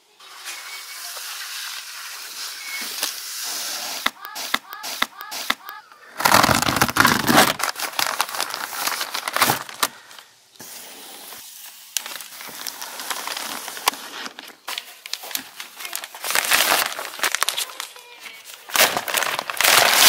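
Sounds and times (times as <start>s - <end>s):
scissors cutting plastic: 4.0s - 9.9s
plastic wrapping crinkling: 6.2s - 10.3s, 11.6s - 20.0s.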